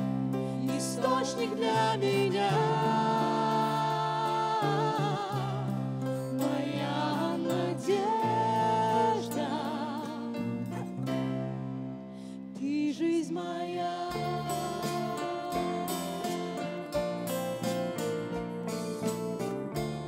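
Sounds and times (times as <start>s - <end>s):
worship band playing: 0.0s - 10.7s
backing singers: 0.5s - 10.6s
woman singing with vibrato: 0.6s - 10.5s, 12.6s - 17.1s.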